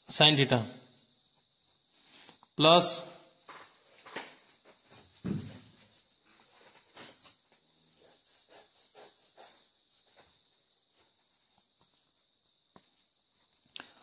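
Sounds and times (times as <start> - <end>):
pen scratching on paper: 7.9 - 9.8.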